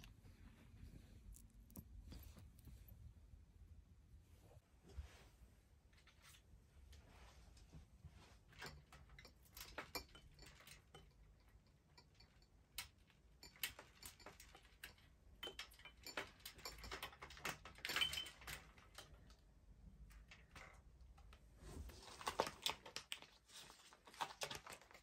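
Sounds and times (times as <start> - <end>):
metal clicks and rattles: 8.6 - 19.4.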